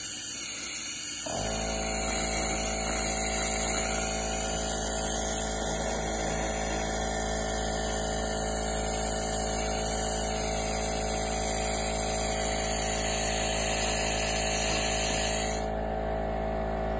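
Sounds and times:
laser cleaner hiss: 0.0 - 15.7
machine hum: 0.0 - 16.9.

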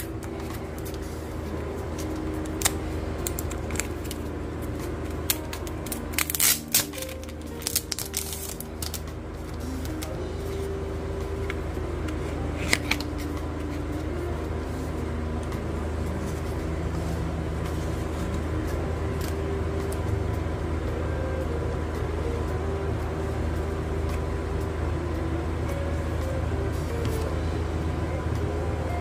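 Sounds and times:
faint background music: 0.0 - 29.0
steady low hum: 0.0 - 29.0
packaging clicks: 2.0 - 10.1, 11.5 - 13.8.

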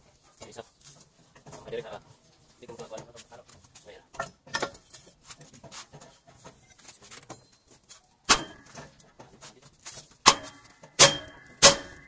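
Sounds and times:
ringing metal-on-metal strike: 8.3 - 8.8, 10.3 - 12.0
steel parts clicking: 8.3 - 9.1, 10.3 - 12.0.

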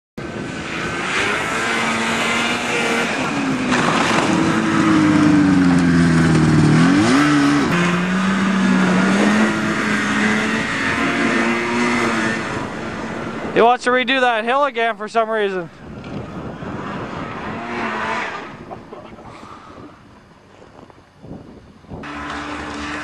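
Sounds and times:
vehicle engine running: 0.2 - 19.2.

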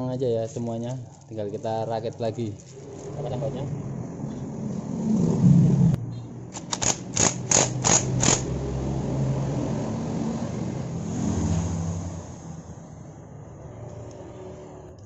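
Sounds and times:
vehicle engine hum: 1.6 - 15.0.

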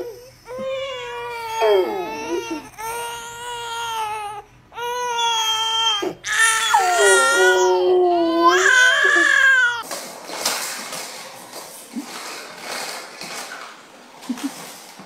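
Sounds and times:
infant crying: 0.0 - 9.8
dog howling: 1.4 - 2.4, 6.0 - 9.8.

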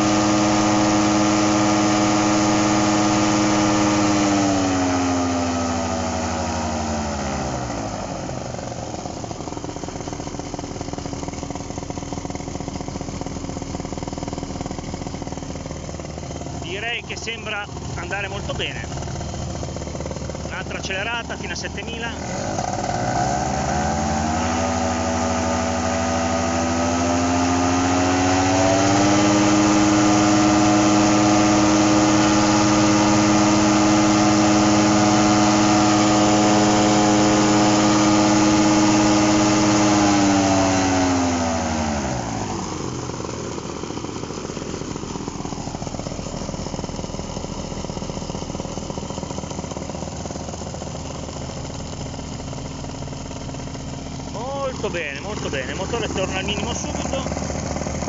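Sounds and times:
paramotor engine revving and idling: 0.0 - 58.0.

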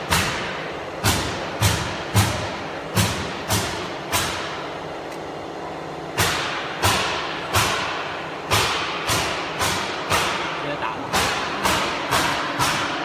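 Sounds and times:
machine hum: 0.0 - 13.0.

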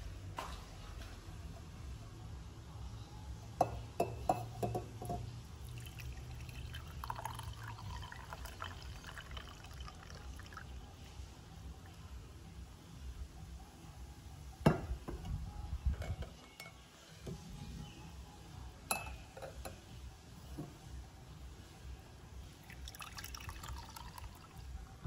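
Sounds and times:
tea pouring through strainer: 5.6 - 10.8, 22.6 - 24.6.

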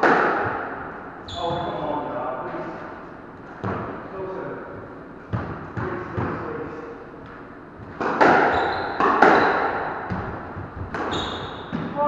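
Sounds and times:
squash ball hits echoing: 0.0 - 1.9, 3.5 - 4.0, 5.3 - 12.0.

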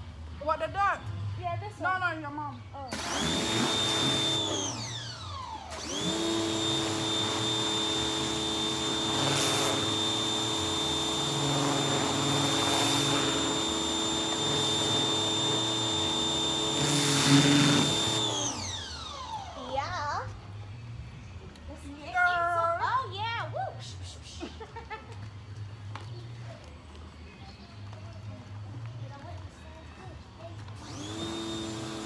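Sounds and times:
pressure washer motor whining: 2.9 - 19.7, 30.8 - 32.0.

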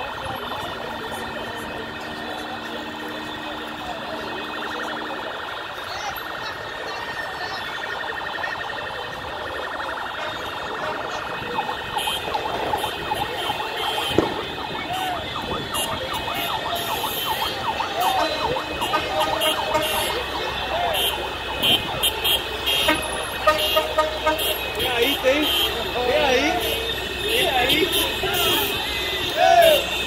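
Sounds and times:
electronic siren wailing: 0.0 - 23.6.

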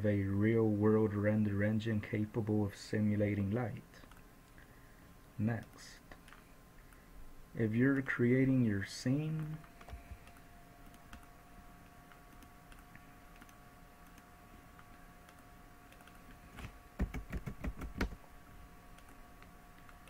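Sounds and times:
faint steady hum: 0.0 - 20.0
keyboard typing: 5.6 - 6.5, 9.2 - 18.2.

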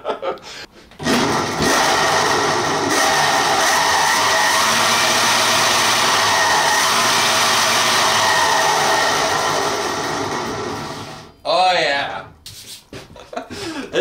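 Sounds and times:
electric motor whirring wheel: 1.0 - 11.3.

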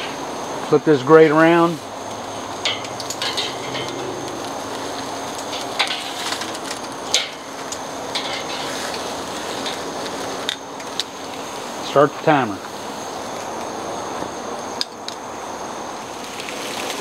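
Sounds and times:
steaks sizzling on a grill: 0.8 - 13.2, 15.6 - 17.0
metal tongs clicking on grate: 2.6 - 4.5, 5.4 - 8.7.

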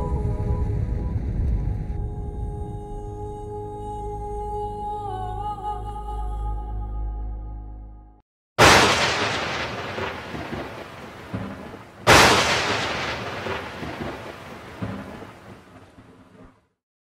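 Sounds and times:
thunderclaps: 8.6 - 16.5.

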